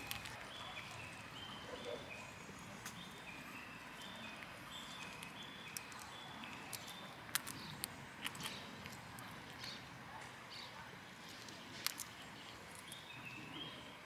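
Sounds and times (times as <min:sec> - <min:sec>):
sharp clicks: 0:04.3 - 0:09.8.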